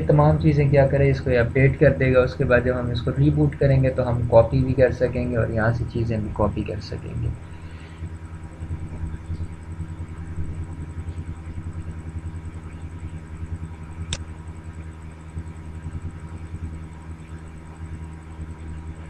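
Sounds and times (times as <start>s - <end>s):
faint high whine: 0.0s - 19.0s
fluttering low hum: 0.0s - 19.0s
sharp click: 14.1s - 14.3s.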